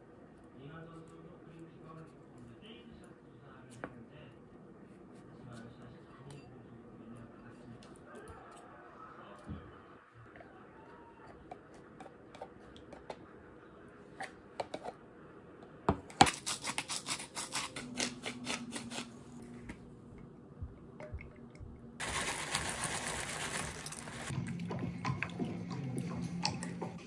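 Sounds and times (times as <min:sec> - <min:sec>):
spoon scraping yogurt tub: 0:11.2 - 0:13.2, 0:14.1 - 0:15.0, 0:16.2 - 0:19.8
granola poured from plastic bag: 0:22.0 - 0:24.3.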